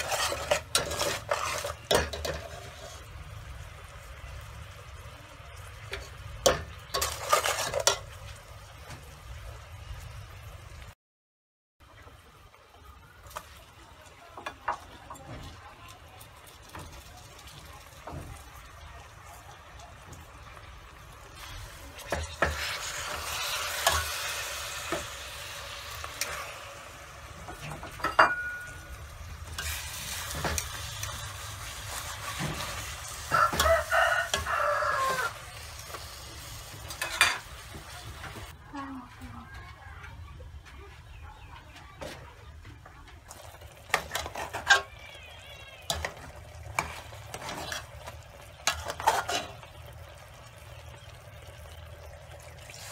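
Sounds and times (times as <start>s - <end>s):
tongs and ladle clinking on metal: 0.0s - 3.0s, 5.9s - 8.2s, 21.4s - 25.2s, 27.4s - 35.3s, 36.8s - 38.5s, 43.3s - 45.0s, 45.9s - 49.8s
food sizzling in sauce: 0.0s - 11.0s, 11.9s - 38.6s, 43.3s - 52.9s
rooster crowing: 33.2s - 35.6s.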